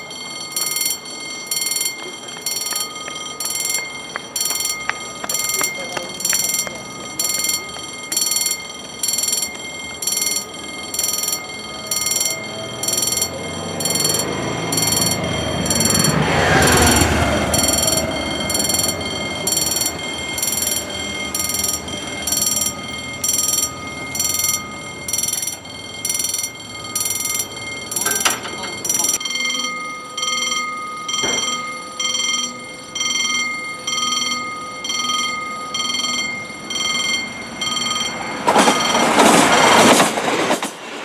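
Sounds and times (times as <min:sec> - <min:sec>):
level crossing bell ringing: 0:00.0 - 0:40.0
road vehicle passing: 0:08.8 - 0:29.2.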